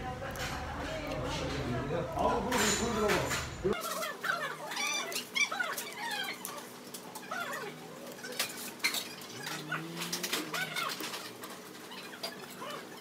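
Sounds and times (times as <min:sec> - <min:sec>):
indistinct voices: 0:09.2 - 0:11.3.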